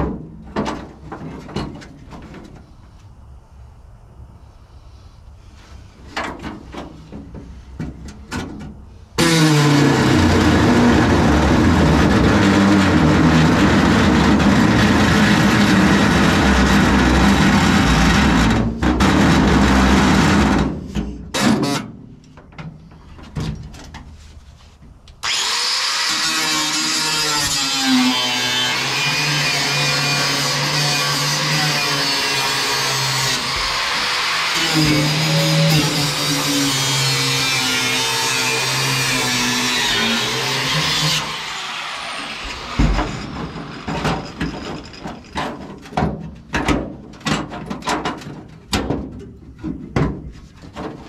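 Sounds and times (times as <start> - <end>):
metal knocks and clanks: 0.0 - 2.6, 42.4 - 51.0
angle grinder cutting steel: 9.2 - 18.4, 25.2 - 45.3.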